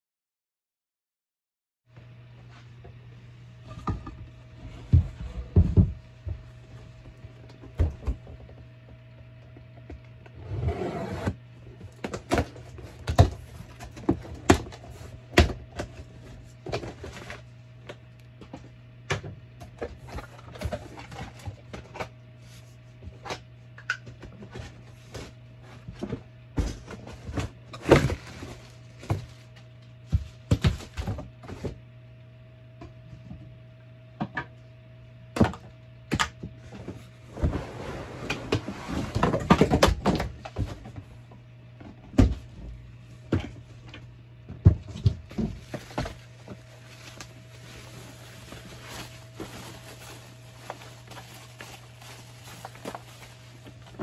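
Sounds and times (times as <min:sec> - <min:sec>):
steady low hum: 0:01.9 - 0:54.0
cardboard scraping and rustling: 0:10.3 - 0:11.4, 0:24.4 - 0:29.6, 0:36.6 - 0:40.9, 0:45.0 - 0:54.0.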